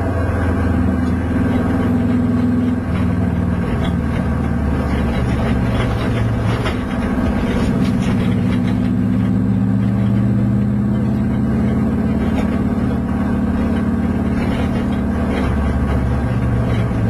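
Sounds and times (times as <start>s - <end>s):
car engine running hard: 0.0s - 17.0s.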